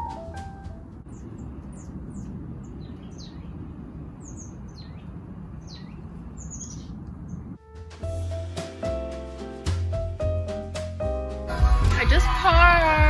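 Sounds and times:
low background rumble: 0.0s - 8.4s
songbirds chirping: 1.0s - 7.6s.

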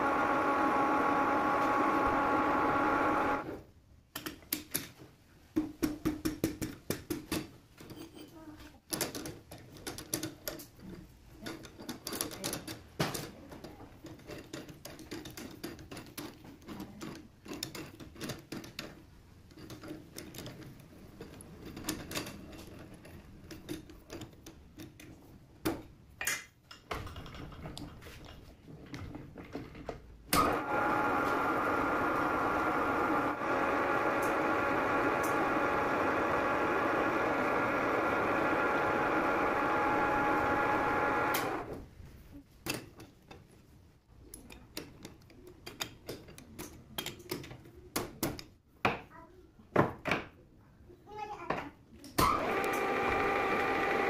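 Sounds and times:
metal lathe humming: 0.0s - 3.5s, 30.4s - 41.7s, 52.4s - 54.0s.

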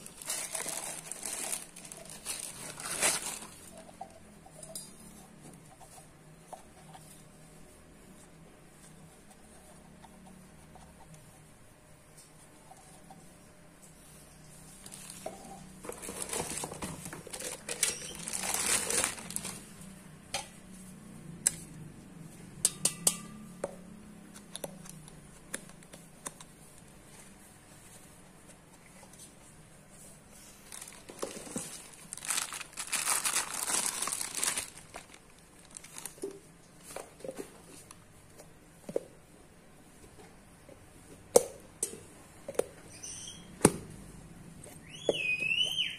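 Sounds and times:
packaging rustling and crinkling: 0.0s - 3.9s, 14.7s - 19.9s, 30.3s - 37.1s.

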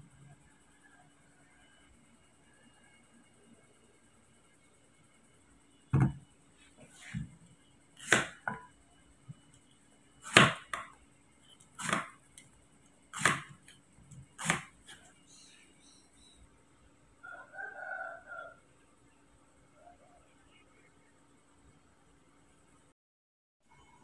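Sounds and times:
knife chopping on wooden board: 8.0s - 8.7s, 10.2s - 11.0s, 11.7s - 12.2s, 13.1s - 13.6s, 14.4s - 15.1s
rooster crowing: 17.2s - 18.7s.

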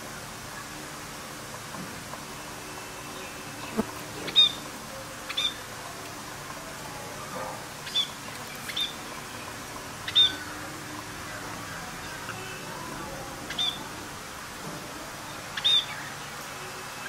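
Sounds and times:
light steady hiss: 0.0s - 17.0s
budgerigars chirping: 10.0s - 10.4s, 13.5s - 13.8s.

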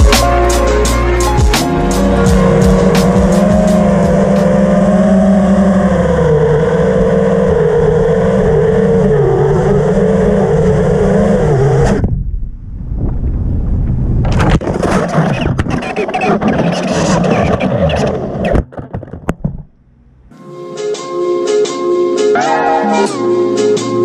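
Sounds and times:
quadcopter motors whining: 0.6s - 12.0s.

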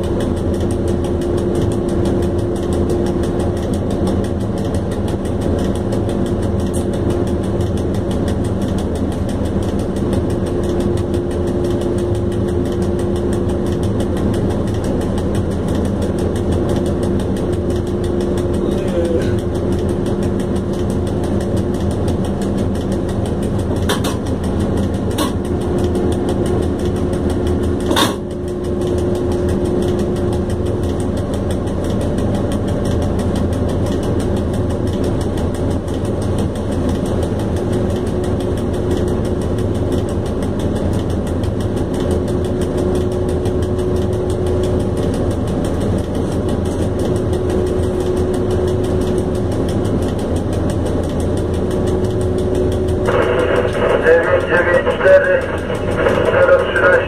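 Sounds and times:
sharp clicks: 0.0s - 57.0s
locomotive cab rumble: 51.8s - 57.0s
faint hum: 51.9s - 57.0s.

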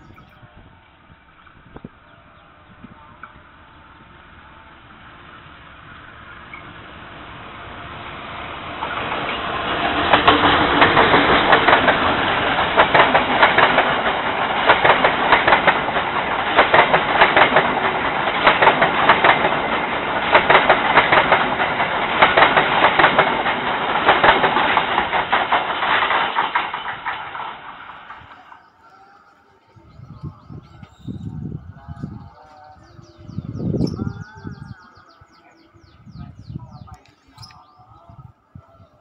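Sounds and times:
diesel locomotive passing: 0.0s - 39.0s
train wheels clickety-clack: 8.4s - 31.3s.

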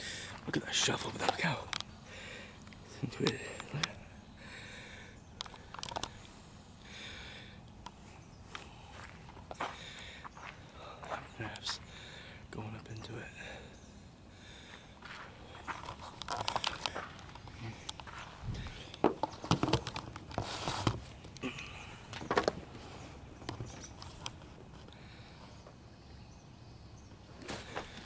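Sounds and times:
outdoor background noise: 0.0s - 28.0s
camera handling knocks and scrapes: 19.0s - 21.1s.

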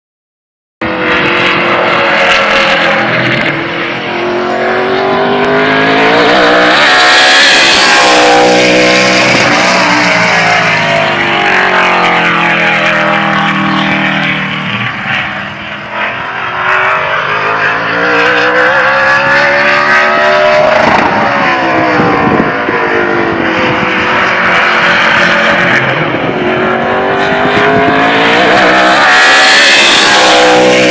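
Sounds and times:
race car engine running hard: 0.8s - 30.9s.

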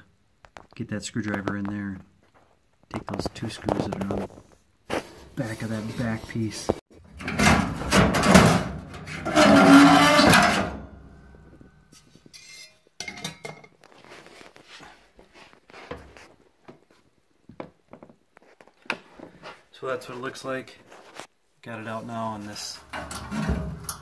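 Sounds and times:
sheet metal scraping and rattling: 7.0s - 12.8s, 22.8s - 24.0s
metal screeching: 7.2s - 11.6s.

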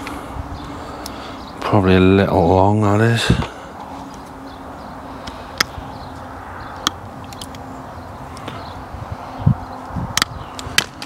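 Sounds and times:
faint outdoor hum: 0.0s - 11.0s.

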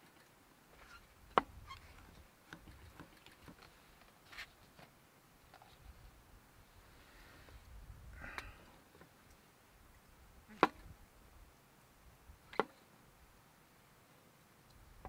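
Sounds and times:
small clatter: 0.0s - 4.9s.

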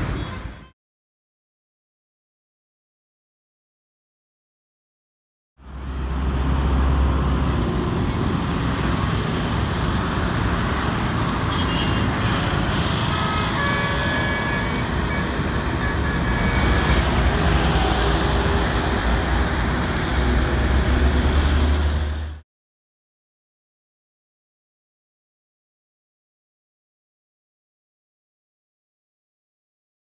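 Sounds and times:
road traffic passing: 5.6s - 22.4s.

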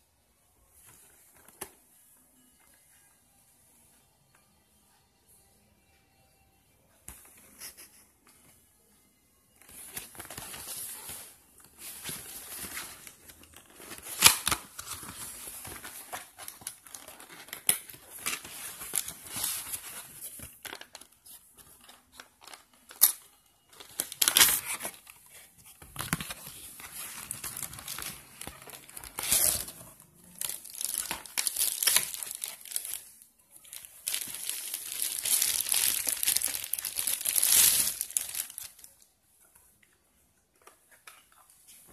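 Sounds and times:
plastic bag crinkling: 26.0s - 39.0s.

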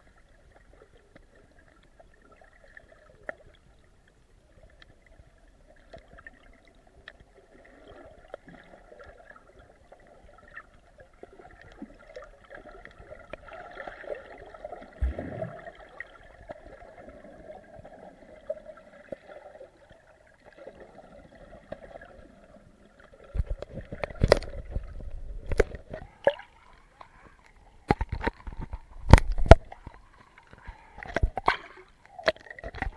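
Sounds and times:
muffled underwater water wash: 0.0s - 32.9s
sharp knocks and splashes: 15.0s - 15.8s, 27.9s - 29.9s.

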